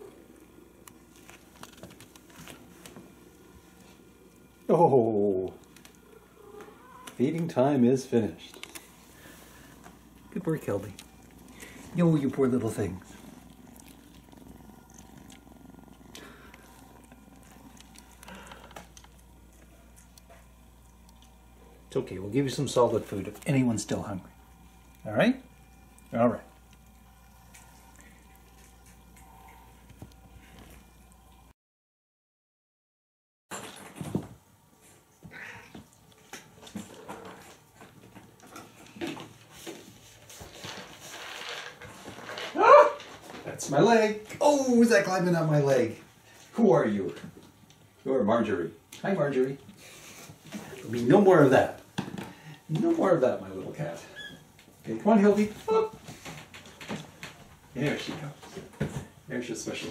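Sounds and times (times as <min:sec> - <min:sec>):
cat purring: 0:00.0 - 0:31.3
cat and kittens meowing: 0:06.1 - 0:07.2.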